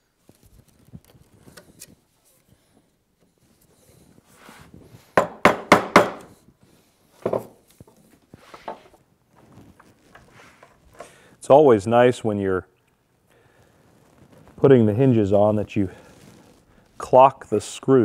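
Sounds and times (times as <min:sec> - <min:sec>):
chisel knocking into wood: 0:05.2 - 0:06.3.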